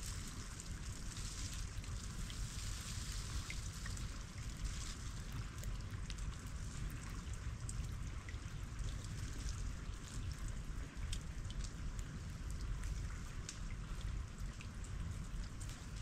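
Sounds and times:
melting ice dripping: 0:00.0 - 0:16.0.

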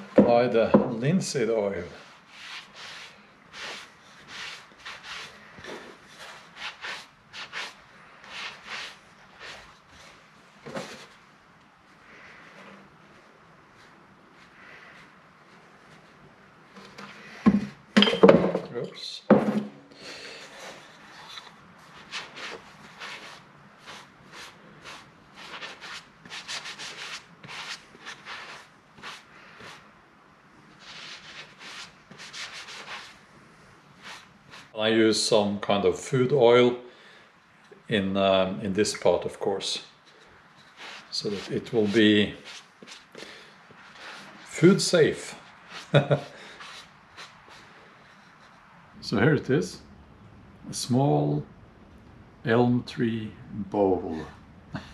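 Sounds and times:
sponge rubbing on wood: 0:02.0 - 0:10.2, 0:20.6 - 0:29.9, 0:30.8 - 0:33.2, 0:34.0 - 0:34.8, 0:40.6 - 0:48.6.

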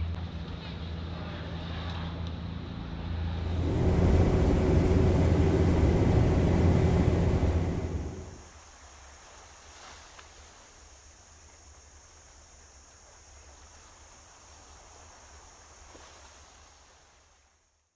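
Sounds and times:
boat engine: 0:03.4 - 0:08.4
low rumble: 0:03.4 - 0:08.4
high hiss: 0:03.4 - 0:08.6.

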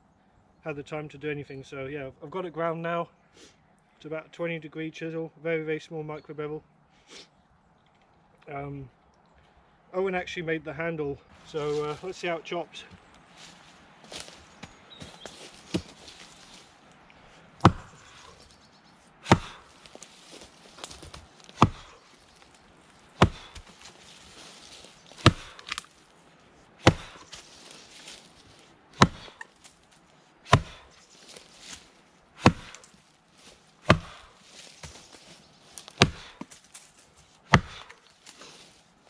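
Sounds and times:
axe chopping log: 0:15.7 - 0:16.1, 0:17.6 - 0:18.3, 0:19.2 - 0:22.0, 0:23.2 - 0:24.5, 0:25.1 - 0:25.9, 0:26.8 - 0:27.4, 0:29.0 - 0:29.4, 0:30.5 - 0:30.9, 0:32.4 - 0:32.9, 0:33.8 - 0:35.0, 0:35.8 - 0:36.6, 0:37.5 - 0:38.0.

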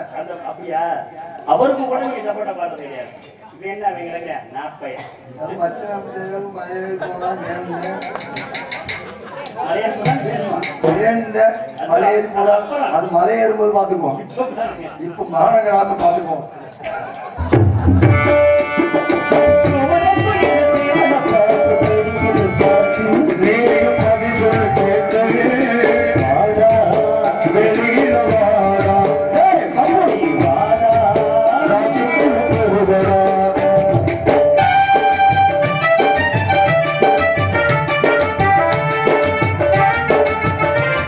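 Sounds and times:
tabla playing a steady rhythm: 0:07.8 - 0:09.2, 0:10.0 - 0:12.3, 0:17.3 - 0:41.0.

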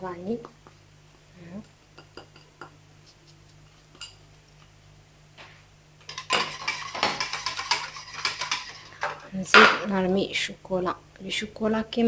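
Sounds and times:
whisk beating in metal saucepan: 0:06.1 - 0:09.2.

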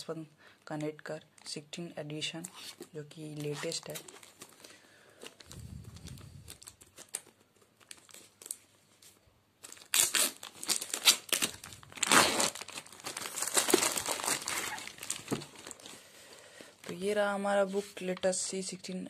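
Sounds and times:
plastic shrink wrap crackling: 0:02.5 - 0:17.2.

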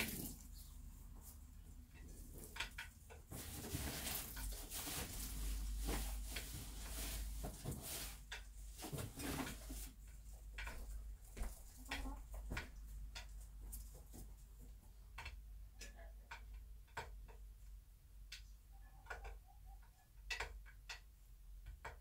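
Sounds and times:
hay rustling and clicking: 0:00.0 - 0:10.8.

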